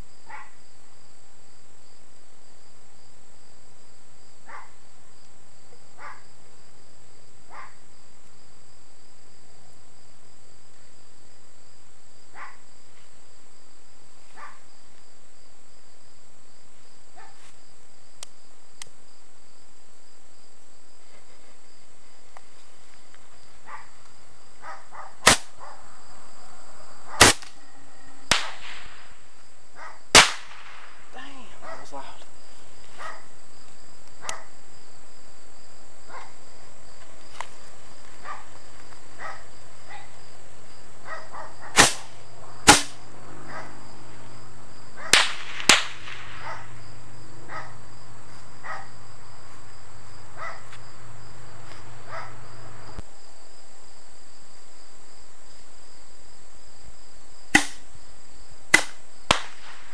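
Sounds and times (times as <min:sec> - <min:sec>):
insects chirping: 0:00.0 - 0:59.9
fireworks pops: 0:25.2 - 0:25.5, 0:27.2 - 0:27.6, 0:28.3 - 0:29.0, 0:30.1 - 0:30.9, 0:41.7 - 0:43.0, 0:45.1 - 0:46.6, 0:57.5 - 0:57.8, 0:58.7 - 0:59.9
fireworks bangs: 0:28.3 - 0:29.2, 0:30.1 - 0:31.4, 0:41.7 - 0:43.0, 0:45.0 - 0:46.8, 0:58.8 - 0:59.9.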